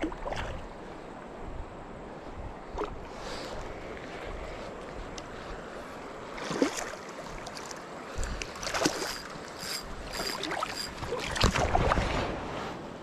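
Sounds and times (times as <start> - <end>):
river water rushing: 5.9 - 12.4
sharp water splashes: 6.4 - 7.6, 8.6 - 9.4.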